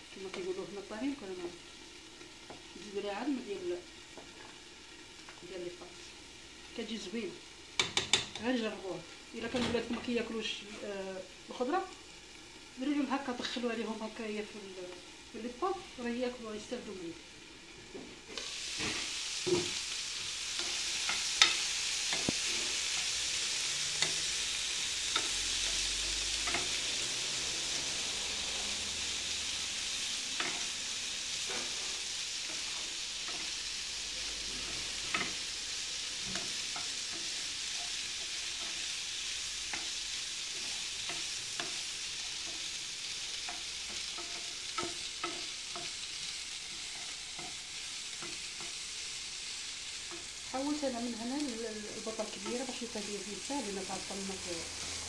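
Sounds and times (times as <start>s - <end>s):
vegetables sizzling in a frying pan: 0.0s - 55.0s
wooden spatula scraping a pan: 31.4s - 33.6s.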